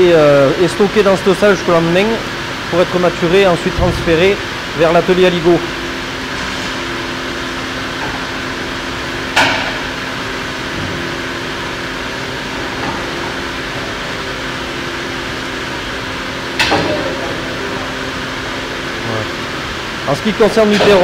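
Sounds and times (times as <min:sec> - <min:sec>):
machinery humming: 0:00.0 - 0:21.0
sharp knocks: 0:09.4 - 0:09.9.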